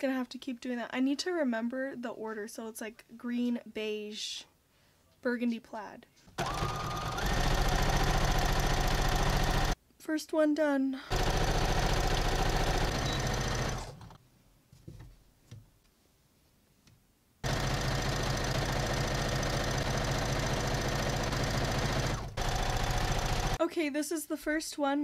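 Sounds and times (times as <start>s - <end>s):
sewing machine stitching: 6.4s - 9.8s, 11.1s - 14.2s, 17.4s - 23.6s.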